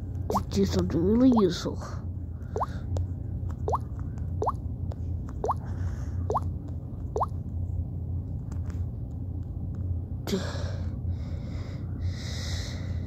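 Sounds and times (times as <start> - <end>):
steady low hum: 0.0 - 13.0
rising plop-like blips: 0.3 - 0.5, 5.4 - 5.6.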